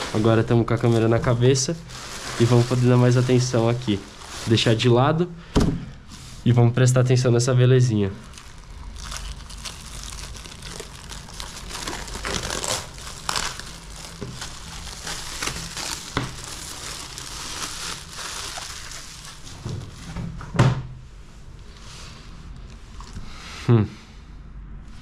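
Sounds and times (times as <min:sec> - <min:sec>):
plastic wrapping crinkling: 0:00.0 - 0:05.1, 0:08.2 - 0:20.1.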